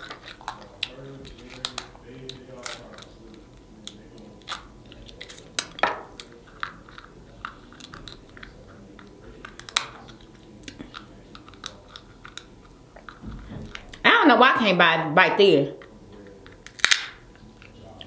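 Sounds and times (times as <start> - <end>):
chewing: 0.0 - 14.0
crab shell cracking: 0.0 - 14.0, 15.8 - 18.0.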